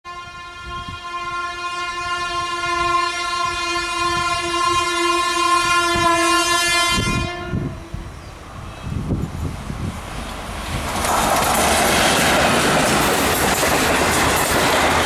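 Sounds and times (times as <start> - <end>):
train horn blast: 0.1 - 8.1
train wheels clattering on rails: 9.2 - 15.0.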